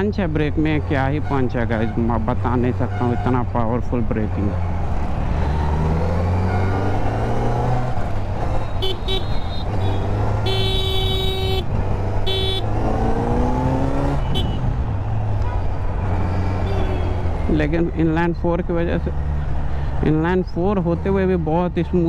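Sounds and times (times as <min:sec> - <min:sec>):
motorcycle engine accelerating: 0:04.7 - 0:17.5
vehicle horn: 0:08.8 - 0:12.7, 0:14.2 - 0:14.7, 0:16.6 - 0:17.2.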